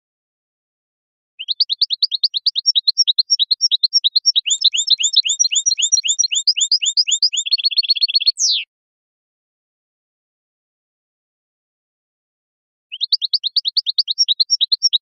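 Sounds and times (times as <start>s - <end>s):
finch singing rapid chirps: 1.4s - 8.7s, 12.9s - 15.0s.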